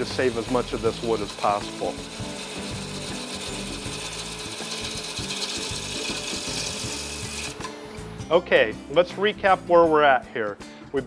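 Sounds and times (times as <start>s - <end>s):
lathe gouge scraping wood: 0.0s - 7.7s.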